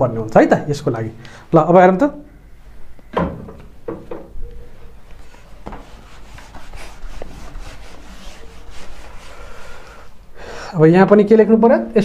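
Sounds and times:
eraser rubbing on whiteboard: 5.2 - 10.1.

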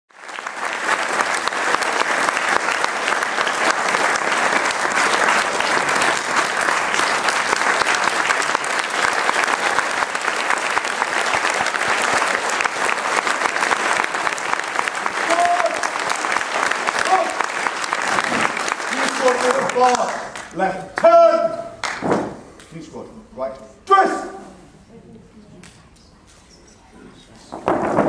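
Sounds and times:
audience applauding: 0.1 - 21.1, 21.8 - 22.0.

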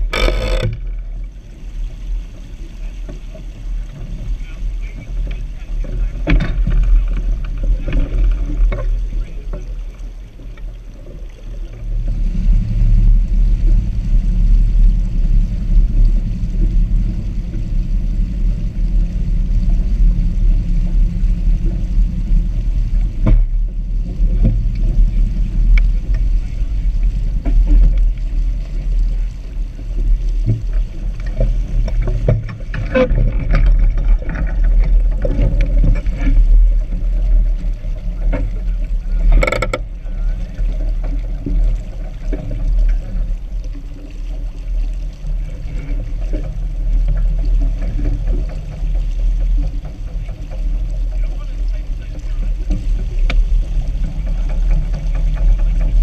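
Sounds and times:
water washing along hull: 0.0 - 56.0
wind buffeting microphone: 11.7 - 43.7, 44.4 - 56.0.

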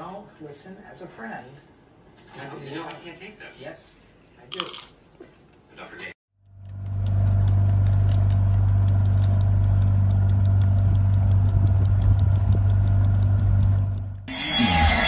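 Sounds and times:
faint fast ticking: 6.4 - 14.3.

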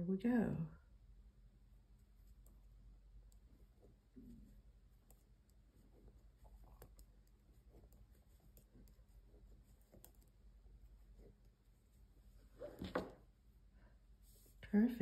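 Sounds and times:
knitting needles clicking: 4.9 - 10.6.

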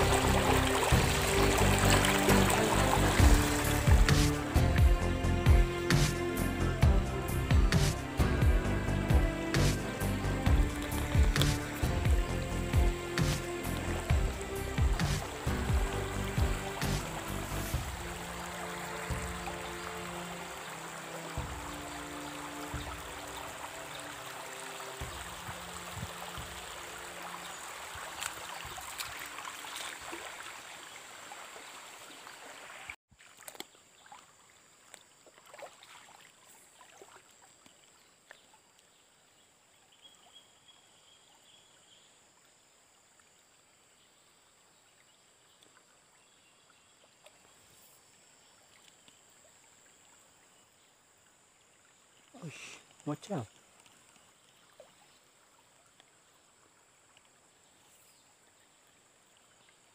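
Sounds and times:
music of held notes: 0.0 - 27.6
stream water running: 0.0 - 59.9.

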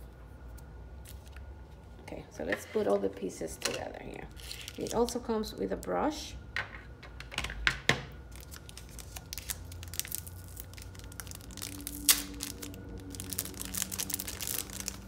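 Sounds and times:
plastic sleeve crinkling: 4.3 - 5.9, 8.3 - 15.0.

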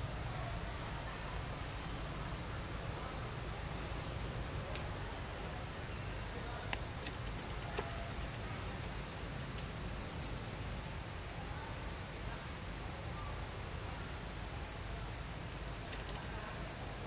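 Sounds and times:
faint clicks: 15.8 - 16.3.

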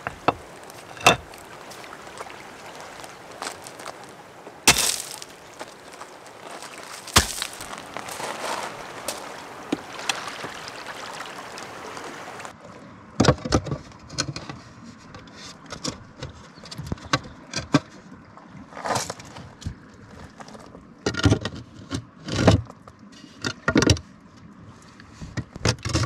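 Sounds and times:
stones knocking and scraping: 0.0 - 10.9
small waves washing on shore: 0.0 - 12.7.

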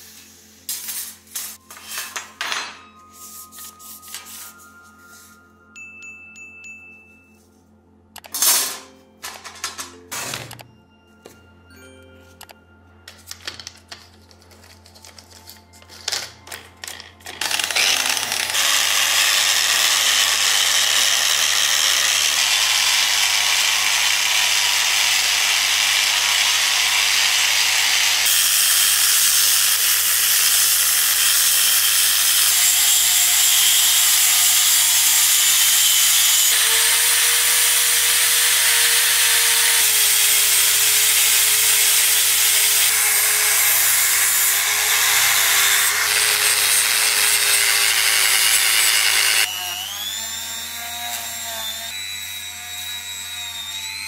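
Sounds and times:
rotary tool whine: 16.1 - 54.0
angle grinder scrubbing metal: 17.3 - 54.0.

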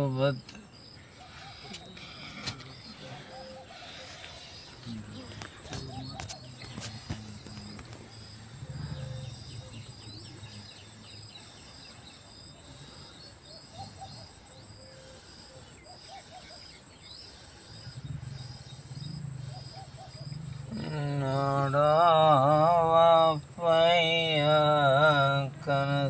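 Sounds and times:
bird calls: 0.0 - 25.7
insects chirping: 0.0 - 26.0.

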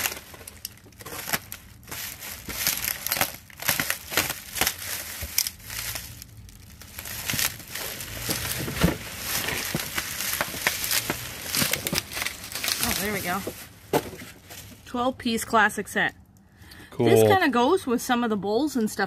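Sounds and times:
bubble wrap crinkling: 0.0 - 14.9.

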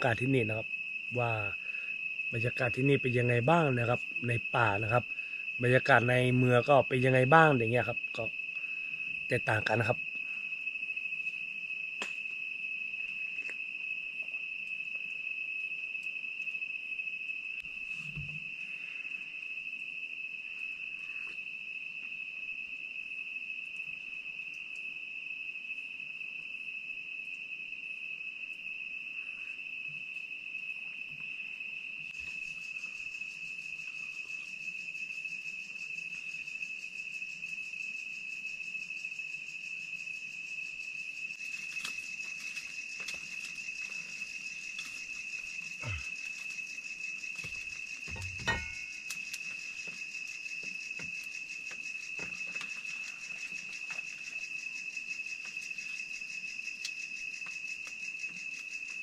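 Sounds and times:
crickets trilling: 0.0 - 59.0.

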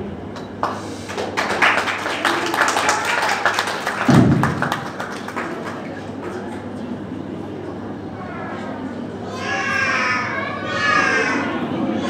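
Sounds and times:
audience clapping: 0.3 - 6.8
loud low thump: 4.1 - 4.8.

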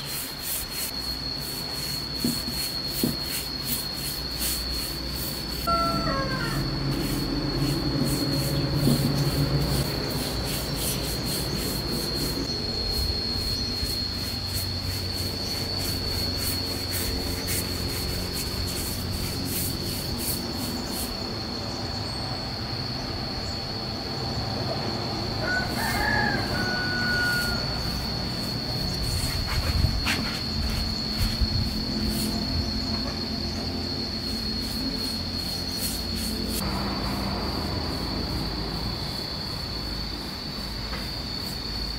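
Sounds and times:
high-pitched insect drone: 0.0 - 41.9
rooster crowing: 5.6 - 7.2, 25.4 - 28.2.

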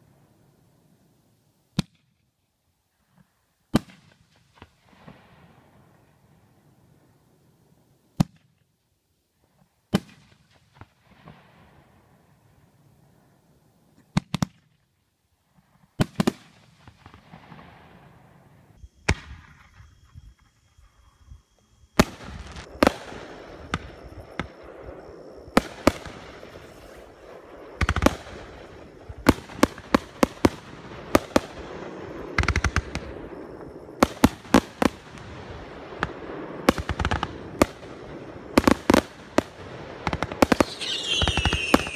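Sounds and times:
firework crackling: 16.0 - 41.9
firework shells bursting: 40.1 - 41.9.

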